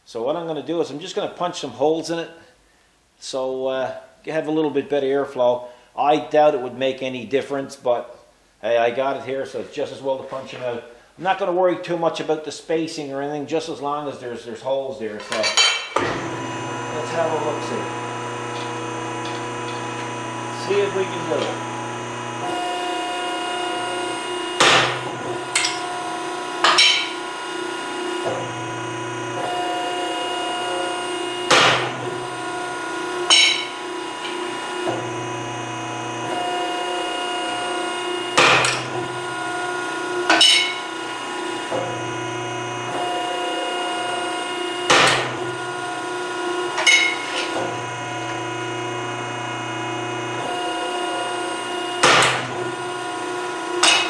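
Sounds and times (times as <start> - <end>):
pump motor humming: 16.0 - 54.0.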